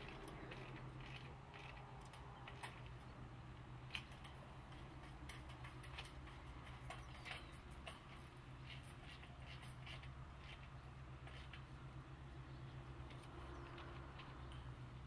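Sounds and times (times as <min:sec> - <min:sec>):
clicks and taps on metal rails: 0:00.0 - 0:10.1.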